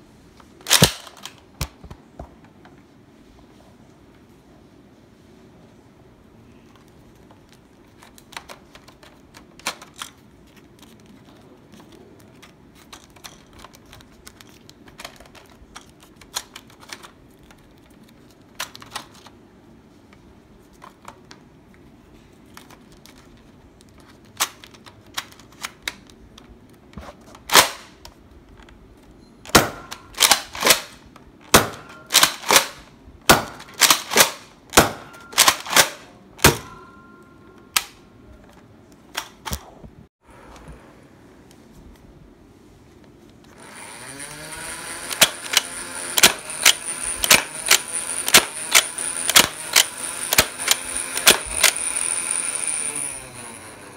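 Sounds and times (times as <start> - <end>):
plastic clicks of handling: 6.7 - 19.4
dart blaster firing snaps: 45.1 - 51.7.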